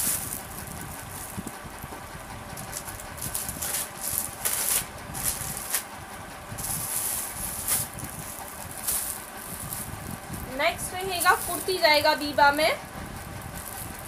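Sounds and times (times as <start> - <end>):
clothing rustling: 6.6 - 12.0.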